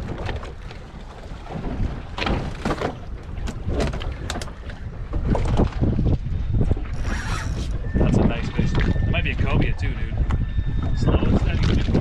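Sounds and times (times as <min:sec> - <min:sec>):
low rumble of wind and sea: 0:00.0 - 0:12.0
sharp knocks or splashes: 0:01.5 - 0:04.4.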